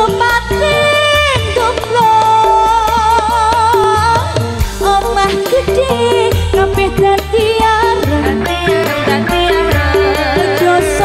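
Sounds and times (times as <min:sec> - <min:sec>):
amplified band accompaniment: 0:00.0 - 0:11.0
woman singing with vibrato: 0:00.0 - 0:11.0.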